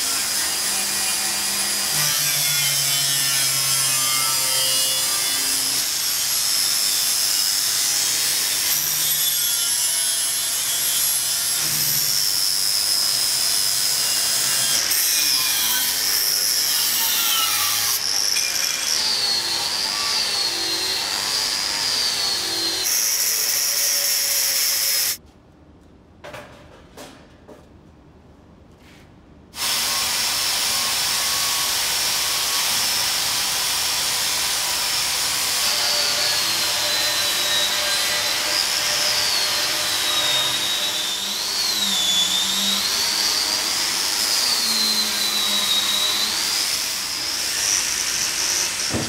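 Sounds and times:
angle grinder grinding steel: 0:12.0 - 0:25.2.

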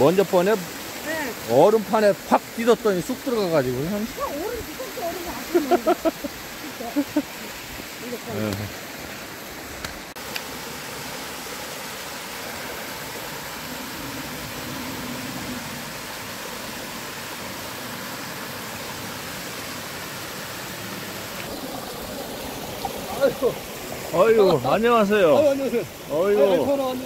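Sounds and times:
stream splashing over rocks: 0:00.0 - 0:27.0.

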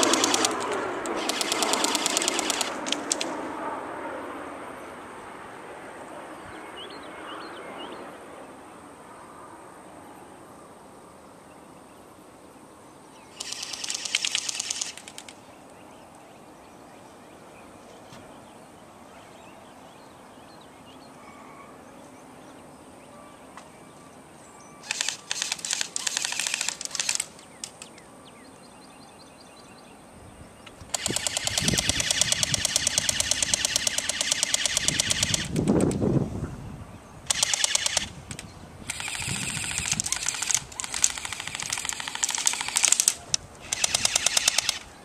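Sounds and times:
airsoft guns firing bursts: 0:00.0 - 0:03.3, 0:13.4 - 0:15.3, 0:24.8 - 0:27.6, 0:30.9 - 0:35.8, 0:37.3 - 0:38.1, 0:38.9 - 0:44.9.

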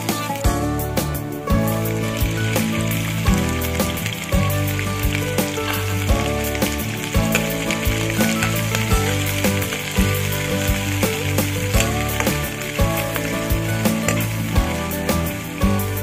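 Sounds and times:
background music: 0:00.0 - 0:16.0
food sizzling in hot oil: 0:00.0 - 0:16.0.

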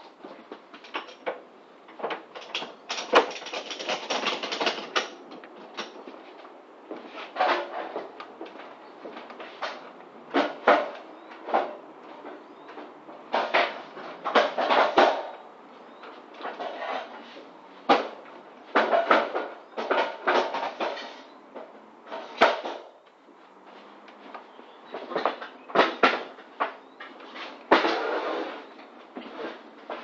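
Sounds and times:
straps and buckles clattering: 0:00.6 - 0:06.2.

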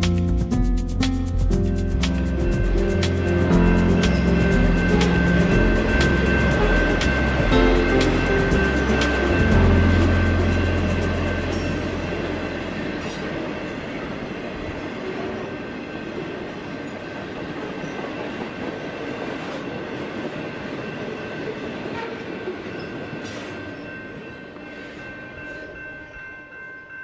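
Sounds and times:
train rolling on rails: 0:00.0 - 0:27.0
thin high ringing tone: 0:01.7 - 0:18.0.

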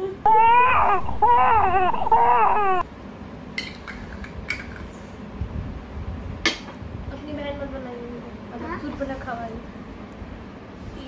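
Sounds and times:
high wailing cry: 0:00.2 - 0:02.8.

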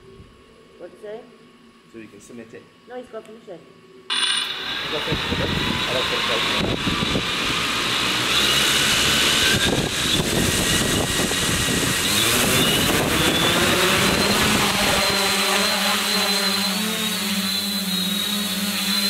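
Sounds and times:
drone propellers buzzing: 0:04.1 - 0:19.0.

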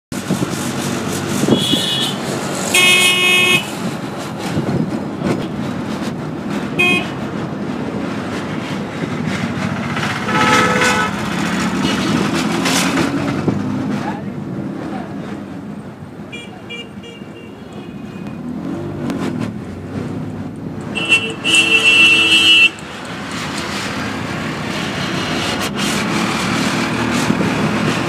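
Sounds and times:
autorickshaw engine running: 0:00.1 - 0:28.0
vehicle horns honking: 0:01.4 - 0:03.7, 0:06.8 - 0:07.2, 0:10.2 - 0:12.1, 0:16.3 - 0:18.4, 0:20.9 - 0:22.8.

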